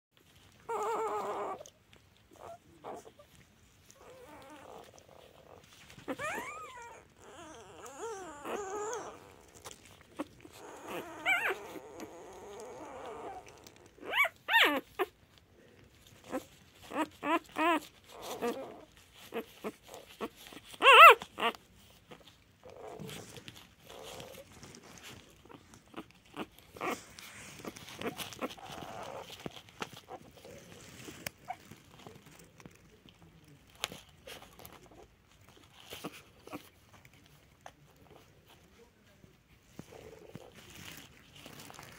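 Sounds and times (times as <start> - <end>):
puppy whimpering and squeaking: 0.4 - 15.3, 16.0 - 32.8.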